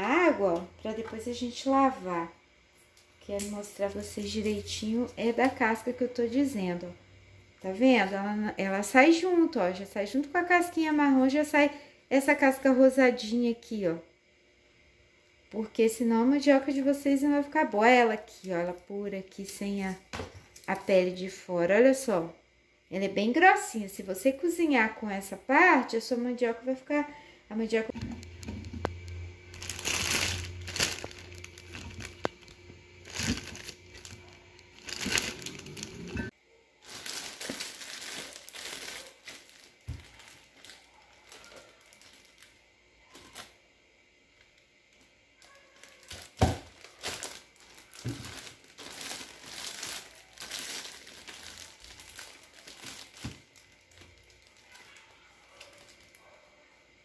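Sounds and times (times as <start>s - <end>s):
plastic bags crinkling: 28.2s - 43.6s, 44.9s - 56.4s.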